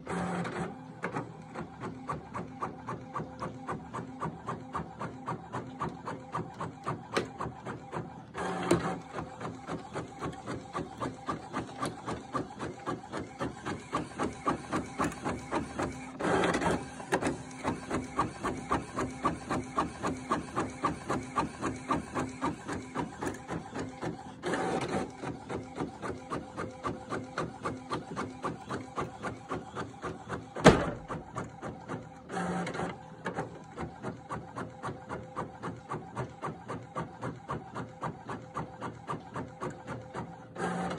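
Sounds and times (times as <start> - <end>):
printer feeding paper: 0.0 - 40.9
printer carriage shuttling: 30.6 - 31.4.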